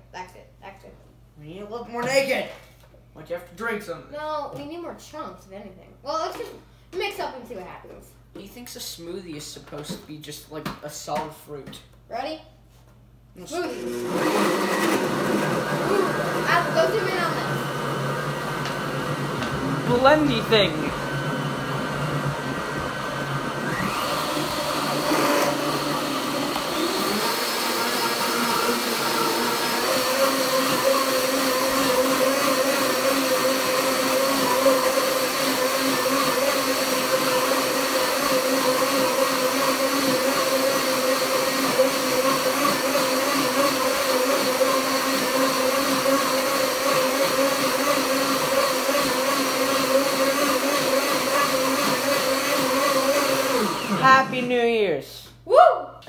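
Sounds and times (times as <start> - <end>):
blender running: 13.4 - 54.9.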